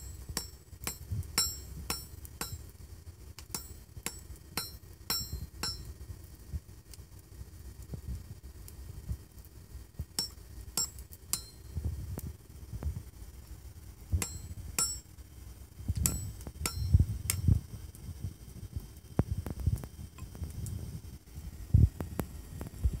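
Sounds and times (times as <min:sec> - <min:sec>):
hammer striking metal on anvil: 0:00.0 - 0:02.7, 0:03.4 - 0:05.9, 0:10.2 - 0:11.8, 0:14.2 - 0:15.1, 0:16.0 - 0:17.5.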